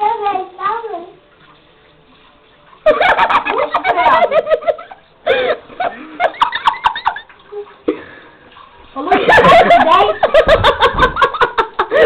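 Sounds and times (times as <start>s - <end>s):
person laughing hard: 9.2s - 12.0s.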